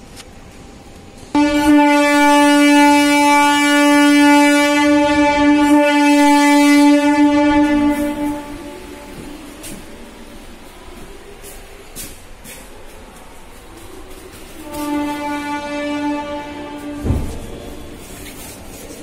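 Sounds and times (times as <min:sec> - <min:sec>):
train horn blast: 0:01.3 - 0:11.1, 0:13.8 - 0:19.0.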